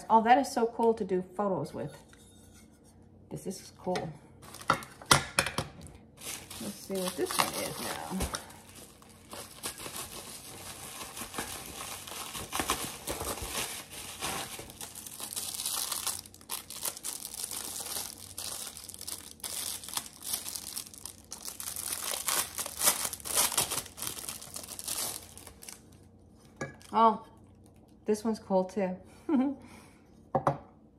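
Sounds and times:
plastic packaging crinkling: 4.4 - 5.1, 6.2 - 26.1.

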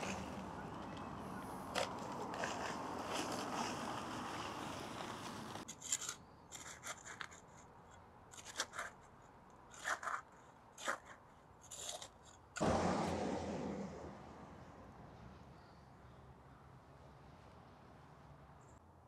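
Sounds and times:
short scratchy crunches: 1.7 - 7.7.

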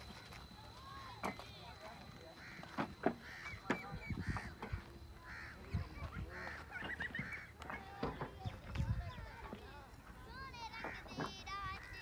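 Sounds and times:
fowl honking: 2.2 - 7.6.

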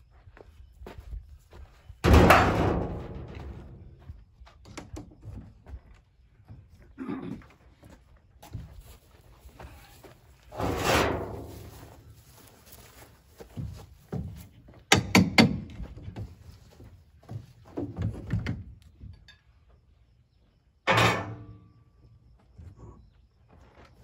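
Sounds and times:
ringing metal clang: 20.9 - 21.7.

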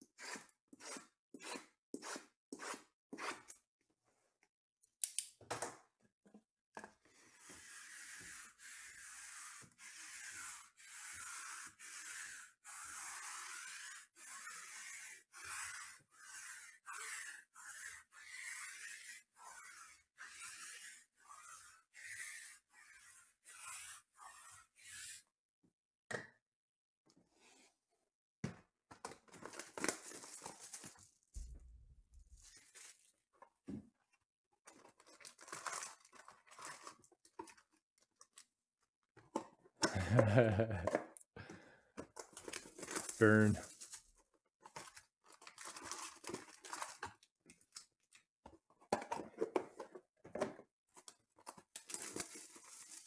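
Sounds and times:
hands scraping shrink-wrapped boxes: 29.4 - 31.2, 42.1 - 47.2, 51.4 - 53.0.

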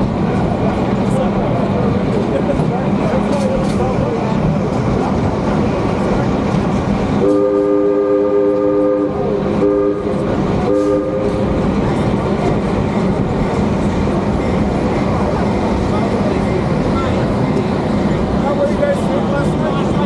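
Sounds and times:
train wheel and car noise: 0.0 - 20.0
locomotive chime horn: 7.2 - 11.5.

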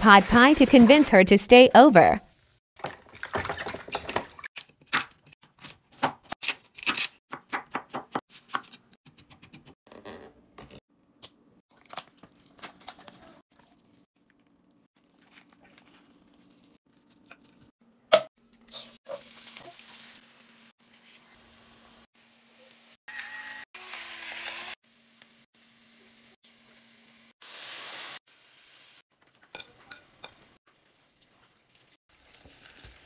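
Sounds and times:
knife chopping on wooden board: 6.9 - 9.6
onion sizzling in a frying pan: 19.1 - 22.8, 23.8 - 29.0, 31.7 - 33.0.

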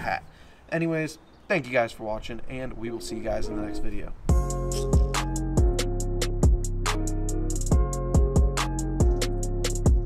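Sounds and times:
music with steady beat: 4.3 - 10.0.

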